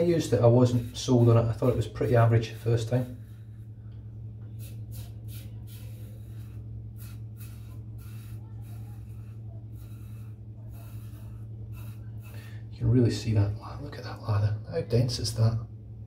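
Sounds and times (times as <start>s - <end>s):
razor scraping stubble: 0.0s - 3.6s, 4.6s - 12.3s
steady low hum: 0.0s - 16.0s.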